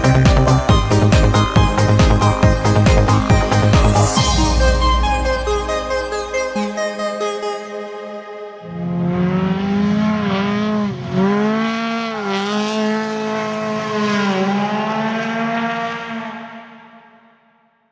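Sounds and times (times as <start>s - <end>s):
car engine revving hard: 8.7s - 16.8s.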